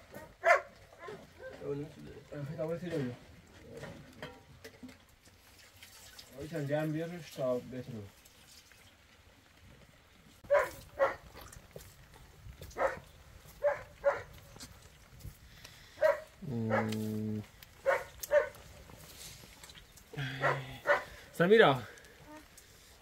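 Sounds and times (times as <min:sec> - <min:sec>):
dog barking: 0:00.1 - 0:01.6, 0:10.5 - 0:11.3, 0:12.8 - 0:13.0, 0:13.6 - 0:14.3, 0:16.0 - 0:17.0, 0:17.8 - 0:18.6, 0:20.4 - 0:21.2
long low dog call: 0:16.0 - 0:18.7, 0:20.2 - 0:21.2.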